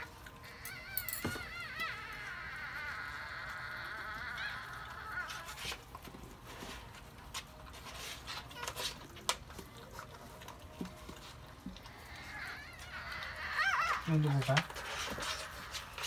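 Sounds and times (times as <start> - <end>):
puppy squeaking: 0.0 - 5.9, 8.2 - 9.4, 11.7 - 16.0.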